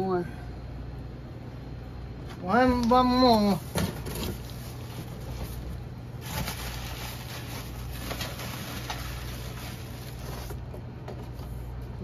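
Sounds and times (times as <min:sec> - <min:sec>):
steady low hum: 0:00.0 - 0:12.0
plastic packaging and cardboard rustling: 0:03.1 - 0:11.7.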